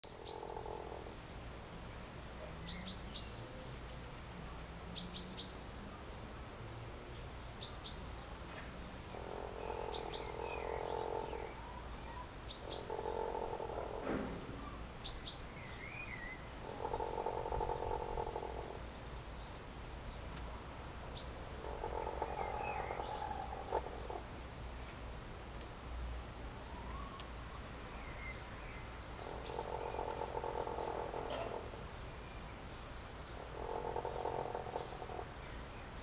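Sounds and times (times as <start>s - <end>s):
hens purring churr: 0.1s - 1.1s, 9.1s - 14.6s, 16.6s - 18.8s, 21.6s - 24.3s, 29.2s - 31.8s, 33.4s - 35.3s.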